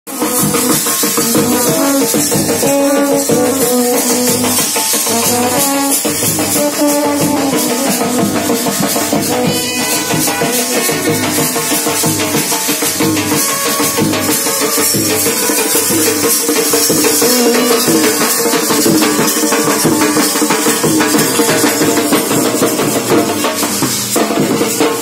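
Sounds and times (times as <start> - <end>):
high percussion rattle: 0.1 - 25.0
bass drum: 0.2 - 25.0
brass horns playing melody: 1.5 - 12.0.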